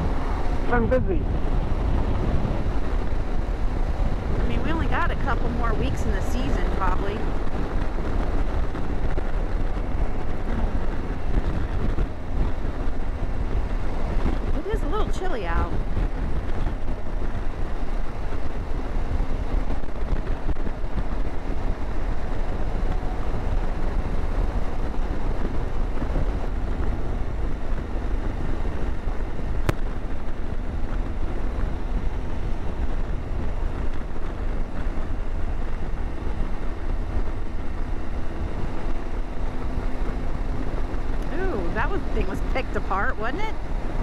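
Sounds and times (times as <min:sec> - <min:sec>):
motorcycle engine drone: 0:00.0 - 0:44.0
road noise: 0:00.0 - 0:44.0
wind buffeting microphone: 0:00.0 - 0:44.0.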